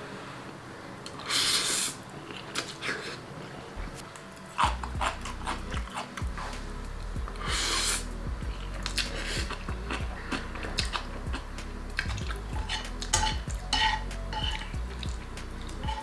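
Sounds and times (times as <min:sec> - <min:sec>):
person slurping noodles: 0:01.2 - 0:03.2, 0:07.4 - 0:08.1, 0:08.9 - 0:11.1
wet chewing and lip-smacking: 0:08.5 - 0:11.4.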